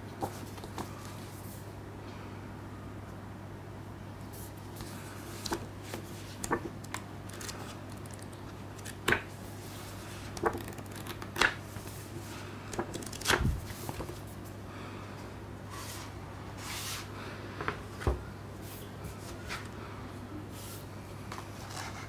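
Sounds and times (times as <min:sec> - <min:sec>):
paper rustling and snapping: 0:05.3 - 0:09.3, 0:10.2 - 0:11.6, 0:12.7 - 0:14.2.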